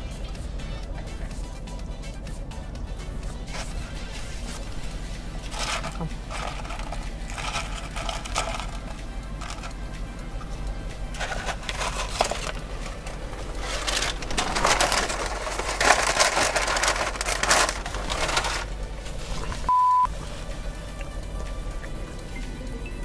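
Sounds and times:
background music: 0.0 - 23.0
paper bag rustling: 3.5 - 9.7, 11.2 - 19.7
censor bleep: 19.7 - 20.1.

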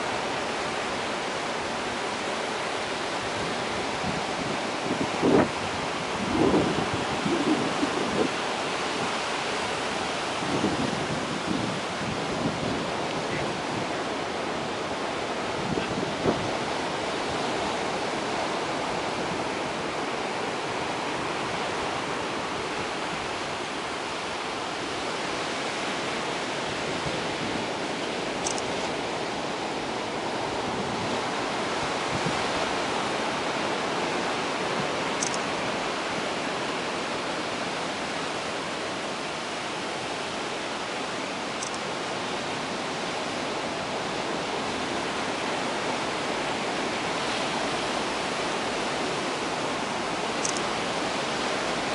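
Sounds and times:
surf breaking on rocky shore: 0.0 - 51.9.

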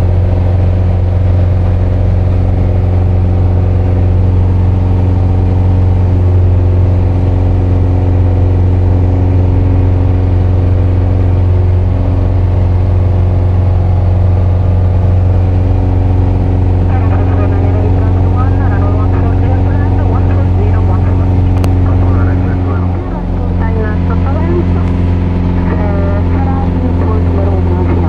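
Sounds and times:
propeller plane engine droning: 0.0 - 28.0.

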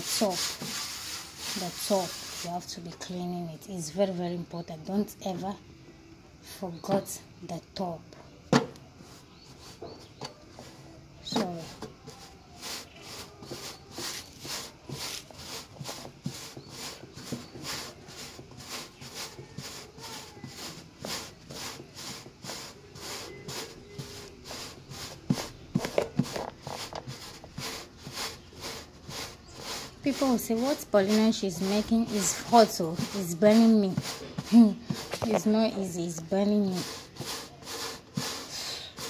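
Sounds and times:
hand patting dough: 11.3 - 39.0.

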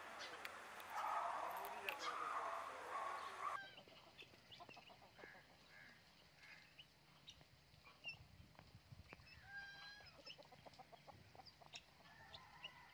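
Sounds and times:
parrots calling: 0.0 - 3.6.

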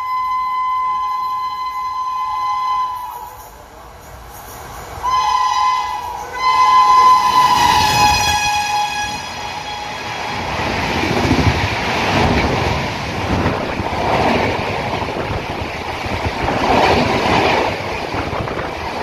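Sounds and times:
locomotive horn blasts: 0.0 - 3.5, 5.0 - 10.5
passenger coaches rumbling past: 0.0 - 19.0.

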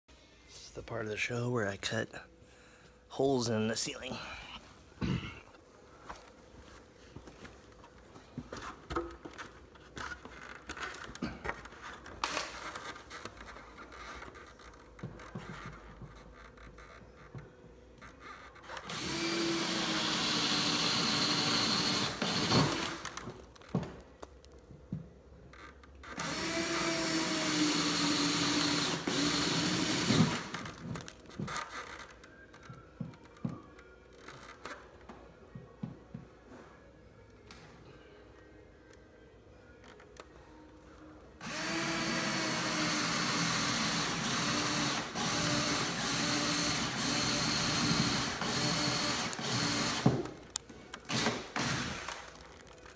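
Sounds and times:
power drill boring into wood: 18.8 - 23.2, 26.1 - 30.8, 41.4 - 50.3, 51.1 - 52.3.

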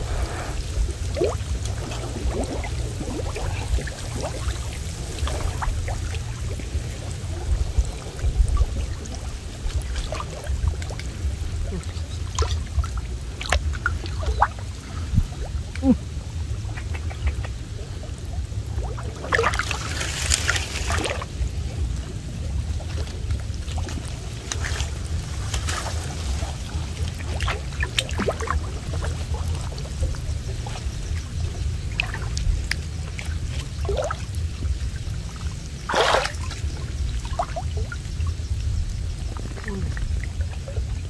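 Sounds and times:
low rumble: 0.0 - 41.0
water splashing off a net: 19.2 - 21.4, 22.8 - 30.8, 35.8 - 37.8.

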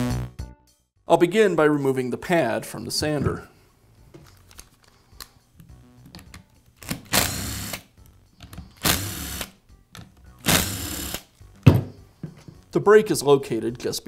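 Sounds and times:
cordless screwdriver whirring: 6.9 - 7.8, 8.8 - 9.5, 10.4 - 11.3.

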